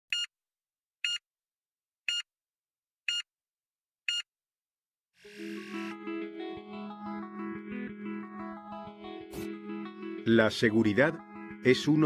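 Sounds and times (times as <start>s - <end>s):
short electronic beeps: 0.1s - 0.3s
music: 5.2s - 12.0s.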